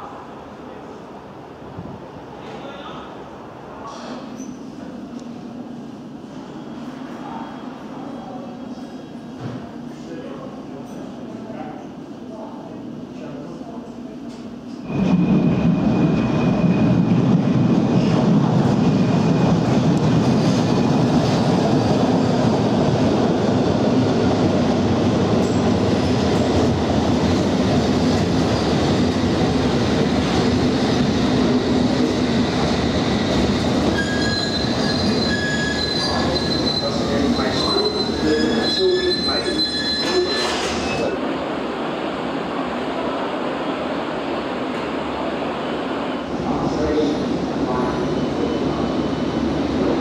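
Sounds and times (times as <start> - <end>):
train rumbling along platform: 0.0 - 50.0
high wheel squeal: 33.9 - 41.1.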